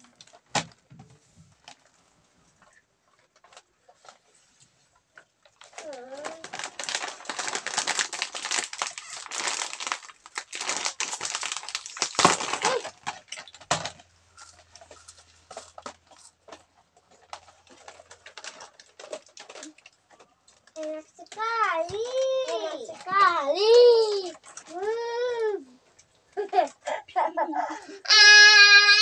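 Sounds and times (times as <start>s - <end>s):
plastic wrappers crinkling: 0.0s - 26.7s.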